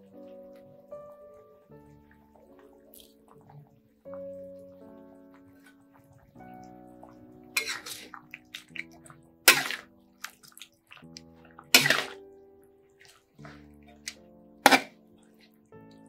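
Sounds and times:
background music with held notes: 0.0s - 16.0s
metal spatula scraping a wok: 7.6s - 8.1s, 11.8s - 12.2s.

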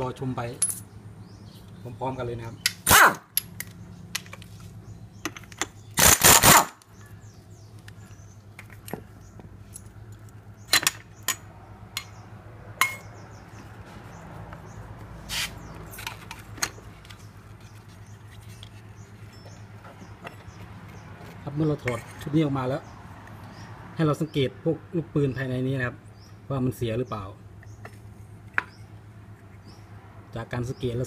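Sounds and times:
metal tools clinking: 0.5s - 0.9s, 9.6s - 12.1s, 12.8s - 13.1s, 21.7s - 22.3s.

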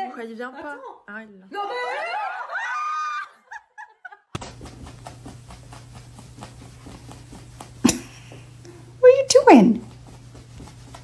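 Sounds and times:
woman laughing: 1.8s - 4.3s, 7.8s - 8.4s
low steady hum: 4.4s - 11.0s.

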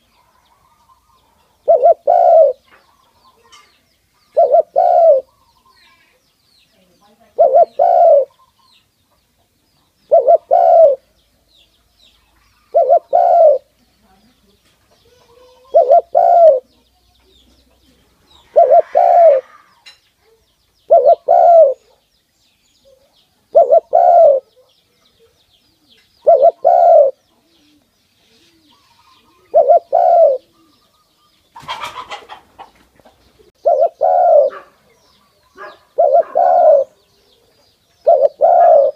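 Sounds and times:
dove cooing: 0.0s - 3.7s, 4.3s - 6.2s, 7.3s - 8.7s, 10.1s - 11.1s, 12.6s - 13.7s, 15.0s - 16.7s, 17.8s - 22.0s, 22.8s - 38.9s.

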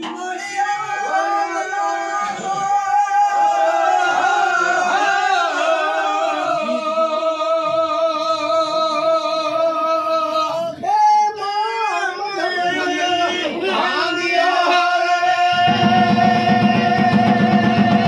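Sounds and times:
man singing devotional song: 6.6s - 18.0s.

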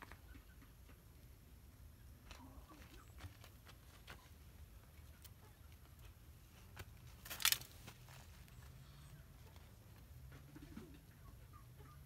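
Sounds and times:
hand rustling in dry leaves: 7.1s - 8.5s.

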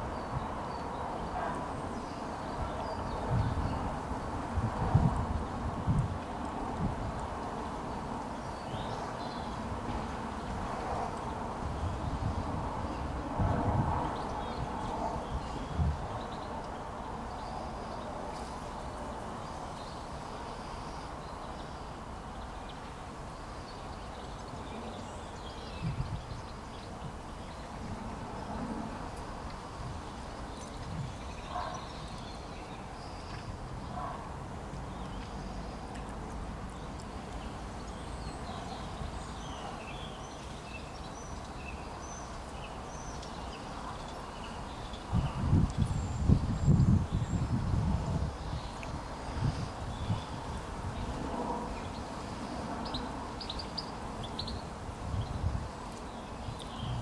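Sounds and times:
wind buffeting microphone: 0.0s - 19.9s, 24.2s - 42.0s, 42.6s - 57.0s
breeze rustling leaves: 0.0s - 57.0s
small birds chirping: 29.2s - 34.2s, 34.8s - 51.2s, 51.8s - 57.0s.

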